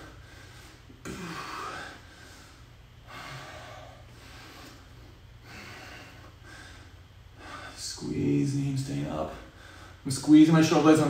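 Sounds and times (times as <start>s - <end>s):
man breathing hard: 0.0s - 8.0s, 9.3s - 10.1s
faint low hum: 0.0s - 11.0s.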